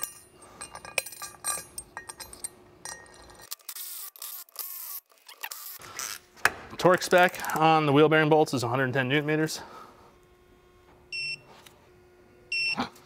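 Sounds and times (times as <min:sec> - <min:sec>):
metal bolts clinking: 0:00.0 - 0:03.5.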